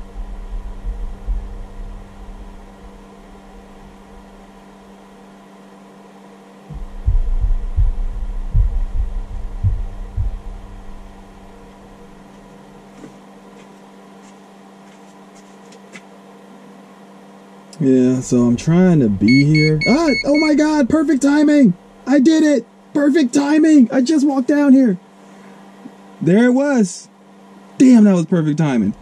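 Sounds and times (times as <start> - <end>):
electrical hum: 0.0 - 29.0
low thuds: 6.7 - 12.2.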